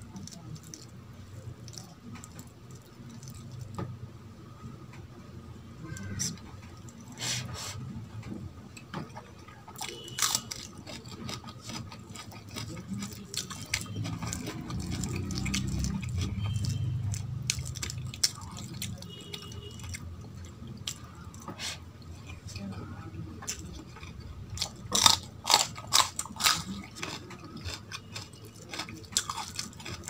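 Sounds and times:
wet chewing and mouth smacking: 0.0s - 3.8s, 9.1s - 22.4s, 23.4s - 30.0s.

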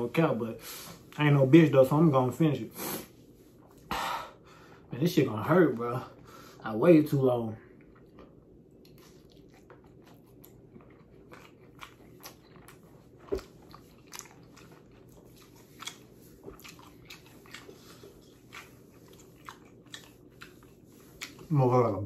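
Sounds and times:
person chewing noodles: 7.7s - 22.0s.

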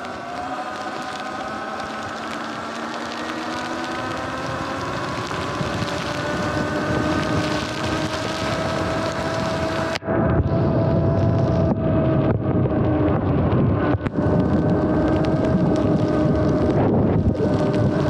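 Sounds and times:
tyres hissing on wet road: 0.0s - 10.0s, 14.0s - 18.0s
electric motor whining: 0.0s - 18.0s
wind on microphone: 0.0s - 18.0s.

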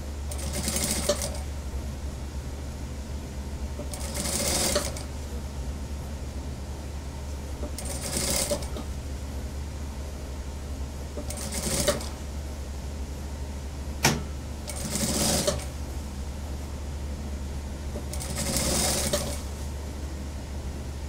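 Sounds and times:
steady low hum: 0.0s - 21.0s
sewing machine stitching: 0.3s - 1.4s, 3.8s - 5.1s, 7.8s - 8.8s, 11.2s - 12.2s, 14.7s - 15.7s, 18.0s - 19.4s.

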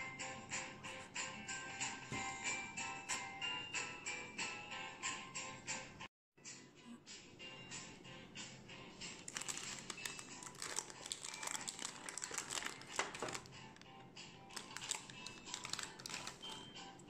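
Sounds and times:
soft background music: 0.0s - 17.0s
baking paper and foil crinkling: 9.2s - 13.9s, 14.5s - 16.7s.

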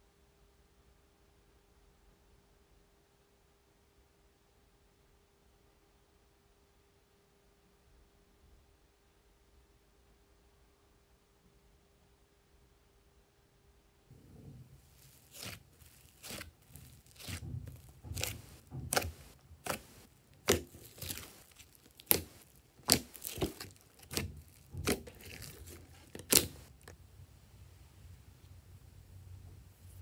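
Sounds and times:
slime popping and squelching: 14.2s - 27.0s.

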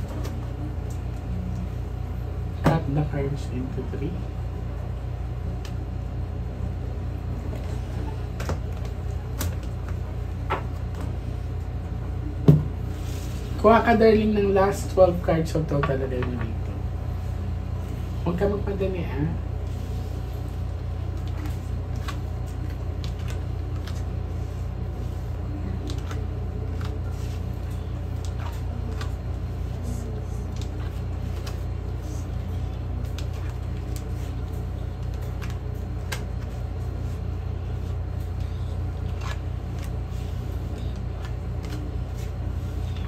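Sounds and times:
steady low hum: 0.0s - 43.0s
cards clicking and sliding: 38.4s - 43.0s.

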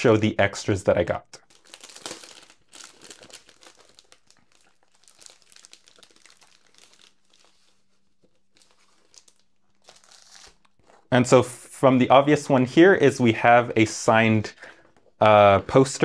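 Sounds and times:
plastic packaging crinkling: 1.4s - 11.1s.

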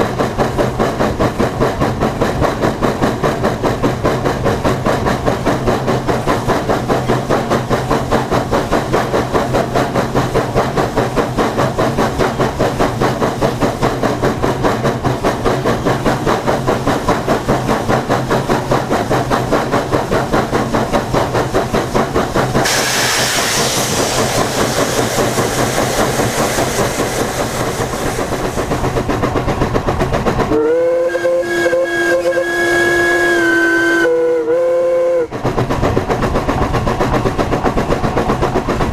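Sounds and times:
steam locomotive chuffing: 0.0s - 38.9s
loud steam hiss: 5.2s - 29.1s
steam whistle blast: 22.6s - 23.8s, 30.5s - 35.3s.

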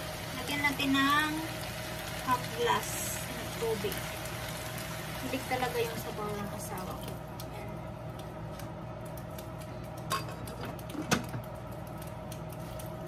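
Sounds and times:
food simmering with crackling: 0.0s - 13.0s
steady hum: 0.0s - 13.0s.

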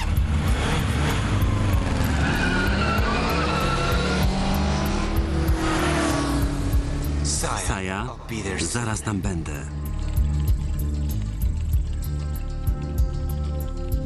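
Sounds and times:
motorcycle engine revving: 0.0s - 7.3s.

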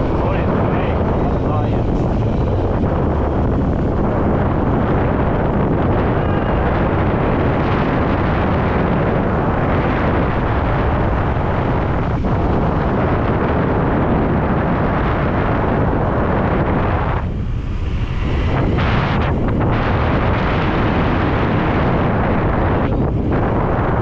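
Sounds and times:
moving vehicle noise: 0.0s - 24.0s
wind rush on microphone: 0.0s - 24.0s.

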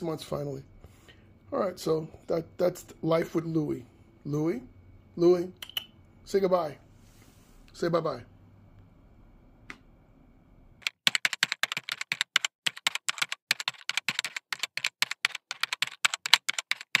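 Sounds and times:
rapid keyboard clicks: 10.8s - 17.0s.

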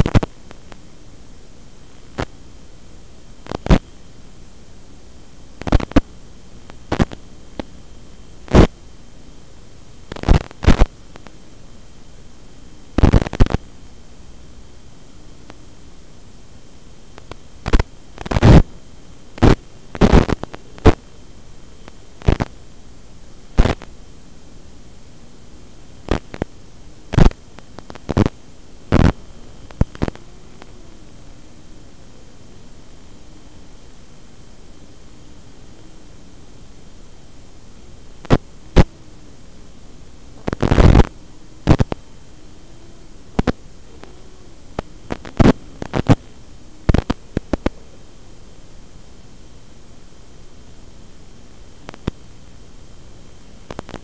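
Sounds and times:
loud crackling bursts: 0.0s - 0.8s, 3.4s - 3.8s, 5.6s - 7.8s, 8.4s - 8.8s, 10.0s - 11.4s, 12.9s - 13.7s, 17.1s - 18.7s, 19.3s - 21.1s, 21.8s - 22.6s, 23.5s - 24.0s, 26.0s - 30.8s, 38.2s - 38.9s, 40.4s - 42.0s, 44.7s - 47.7s, 51.8s - 52.2s, 53.6s - 54.0s
static hiss: 0.0s - 54.0s.

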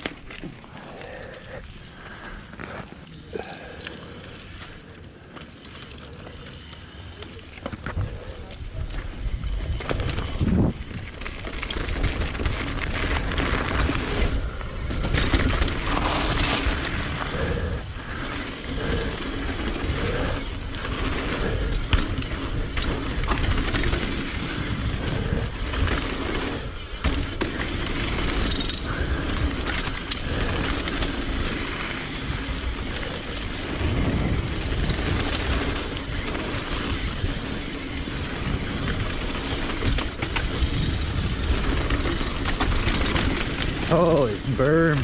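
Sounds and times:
bike rattling over bumps: 0.0s - 45.0s
bike tyres rushing on dirt: 0.0s - 45.0s.

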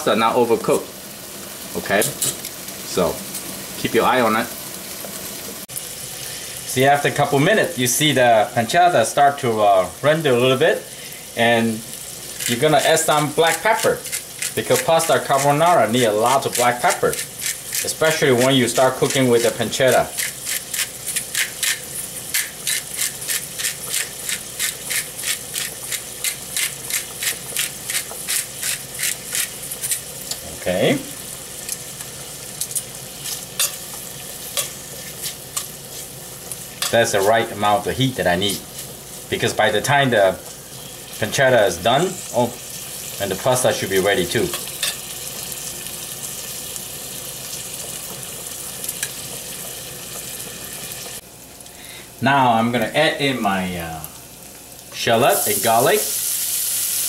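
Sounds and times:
pancetta sizzling in frying pan: 0.0s - 57.0s
pepper mill grinding: 12.2s - 30.4s, 55.3s - 57.0s.

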